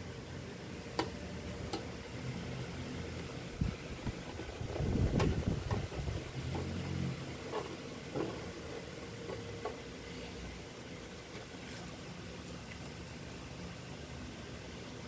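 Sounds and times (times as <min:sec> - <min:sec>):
low mechanical hum: 0:00.0 - 0:15.0
knocks and rustling: 0:04.0 - 0:09.8.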